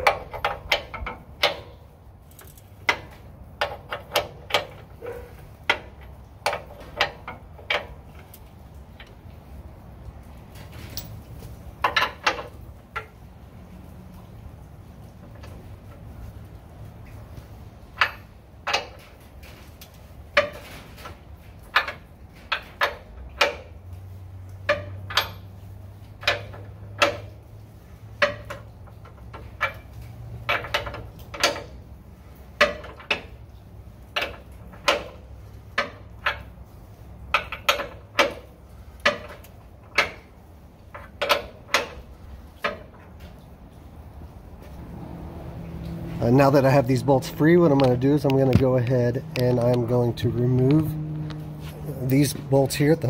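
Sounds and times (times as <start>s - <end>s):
hand ratchet clicking: 0.0s - 4.9s.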